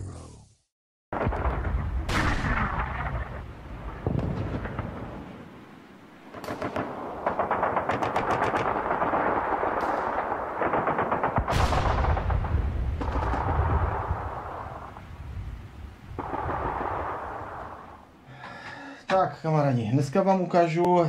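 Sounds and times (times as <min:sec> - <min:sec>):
heavy blast with low rumble: 0:01.2 - 0:05.4, 0:06.6 - 0:18.0
machine-gun fire: 0:06.3 - 0:14.8.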